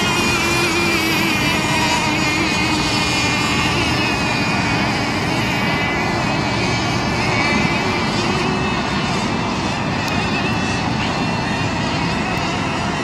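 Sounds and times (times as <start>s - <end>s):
model boat engines buzzing: 0.0s - 13.0s.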